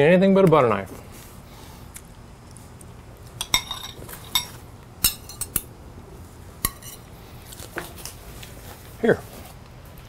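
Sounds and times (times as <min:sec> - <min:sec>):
cutlery clinking against plate: 0:03.4 - 0:05.7, 0:06.6 - 0:07.0.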